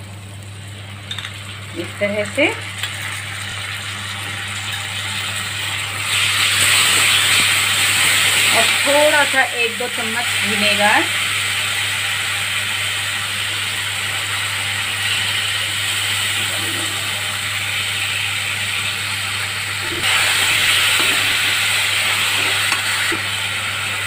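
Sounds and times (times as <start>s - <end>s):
sauce sizzling in a pan: 0.3s - 24.0s.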